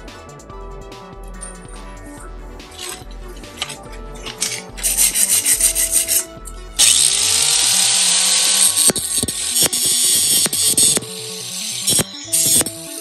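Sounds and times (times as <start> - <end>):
angle grinder cutting steel: 2.8 - 13.0.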